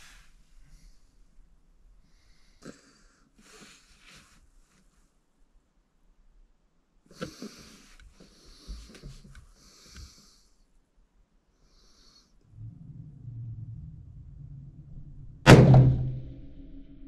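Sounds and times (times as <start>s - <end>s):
person breathing: 2.0s - 4.4s, 7.1s - 10.7s, 11.5s - 13.0s.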